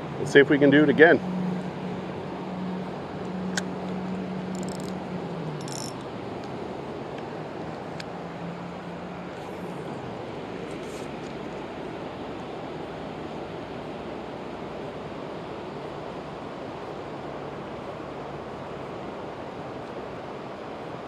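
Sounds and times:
engine low hum: 0.0 - 21.0
sharp clicks: 5.6 - 6.0.

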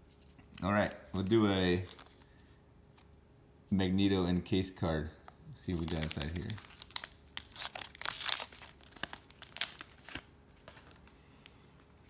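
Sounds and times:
foil pack ripping and crinkling: 5.7 - 11.2.

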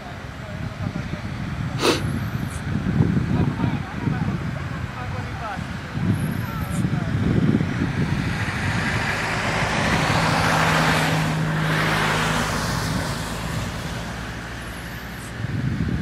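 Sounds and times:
car passing by: 7.8 - 16.0.

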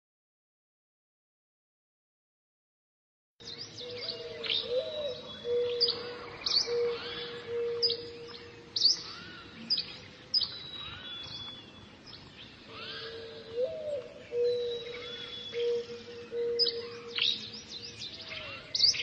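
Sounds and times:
birds chirping: 3.4 - 19.0.

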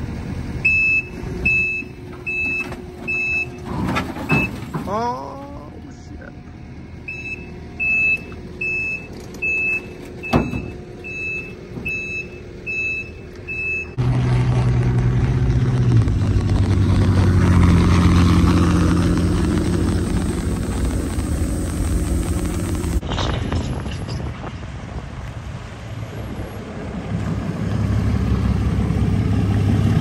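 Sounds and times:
backup alarm beeping: 0.6 - 4.6, 7.0 - 14.0
pickup truck with trailer passing: 6.0 - 30.0
metal clank: 9.1 - 10.8.

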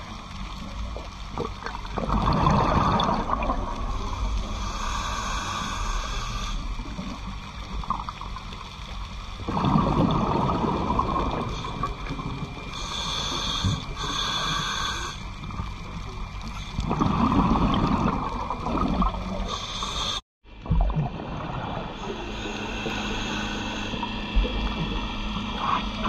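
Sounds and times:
exhaled bubbles gurgling: 0.0 - 8.7, 9.3 - 26.0
underwater rumble: 0.0 - 26.0
regulator hissing inhalation: 3.9 - 6.7, 12.7 - 15.3, 19.4 - 20.2, 22.0 - 24.2.

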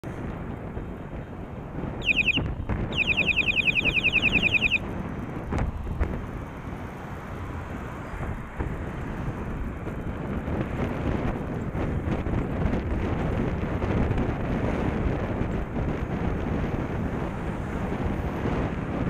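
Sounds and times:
road noise: 0.0 - 19.0
wind on microphone: 0.0 - 19.0
falling electronic chirps: 2.0 - 4.8.

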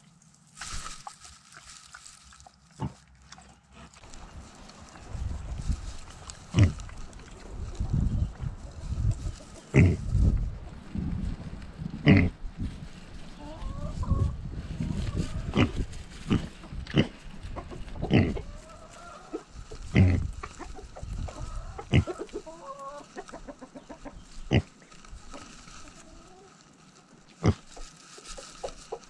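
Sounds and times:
pig grunting: 6.5 - 6.9, 9.7 - 10.1, 12.0 - 12.4, 18.0 - 18.4, 19.8 - 20.3, 24.5 - 24.7
hens clucking softly: 13.3 - 26.7, 27.4 - 29.0.

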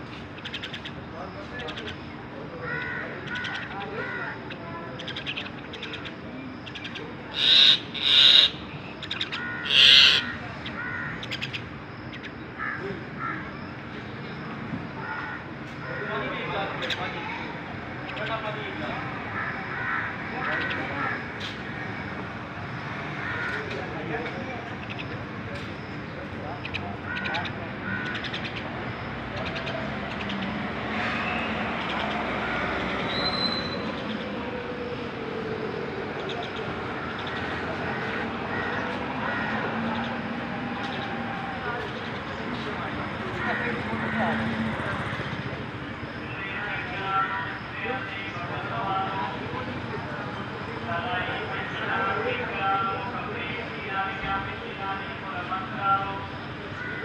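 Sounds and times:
street traffic noise: 0.0 - 57.0
myna bird calling: 0.3 - 13.9, 19.2 - 49.8
vehicle passing: 28.7 - 52.2.

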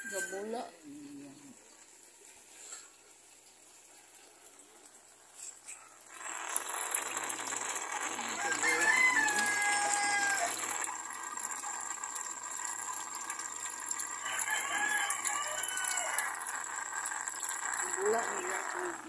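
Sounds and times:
rooster crowing: 8.2 - 10.8, 14.1 - 16.4.

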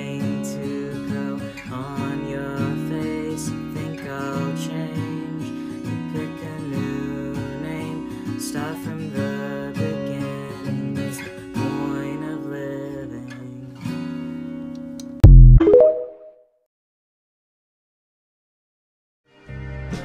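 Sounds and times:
acoustic guitar strumming: 0.0 - 14.9.

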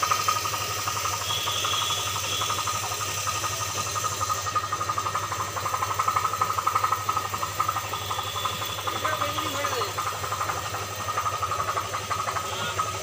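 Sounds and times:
machine running with fast pulse: 0.0 - 13.0.

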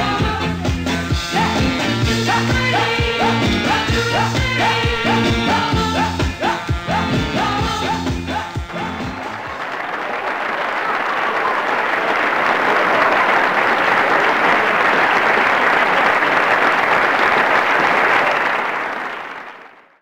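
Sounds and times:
audience applause: 8.7 - 20.0.

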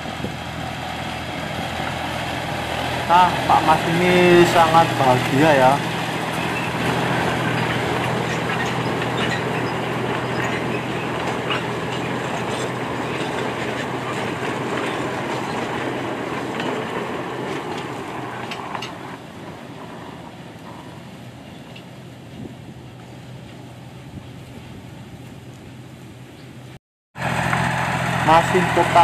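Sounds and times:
train wheels clacking over track: 0.0 - 22.0
locomotive engine hum: 0.0 - 29.0.

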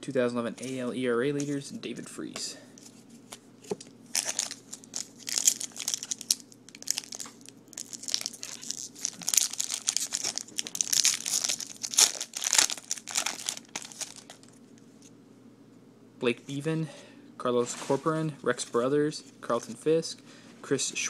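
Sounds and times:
foil wrapper crinkling and tearing: 4.1 - 14.6.

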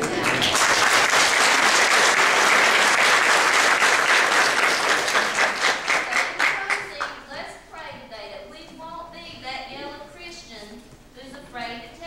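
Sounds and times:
congregation applauding: 0.0 - 7.2.

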